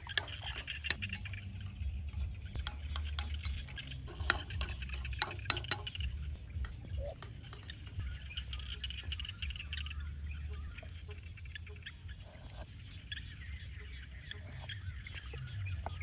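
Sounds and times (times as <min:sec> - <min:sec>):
metal spoon clinking bowl: 0:00.0 - 0:09.0.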